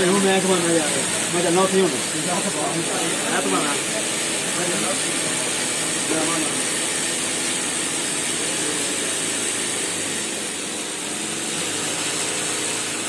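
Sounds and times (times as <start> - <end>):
mechanical running noise with hiss: 0.0 - 13.0.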